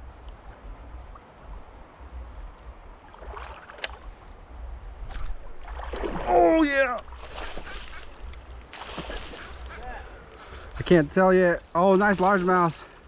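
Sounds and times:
water noise from wading: 0:00.1 - 0:10.8.

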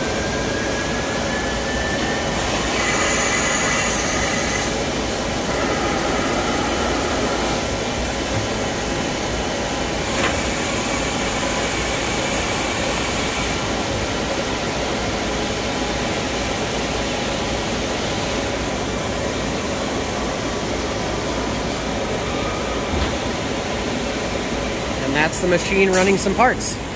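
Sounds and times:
lathe running: 0:00.0 - 0:13.8.

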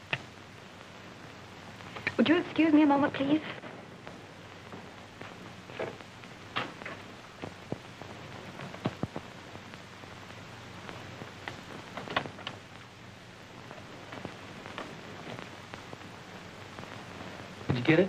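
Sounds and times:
film soundtrack hiss: 0:00.0 - 0:18.0.

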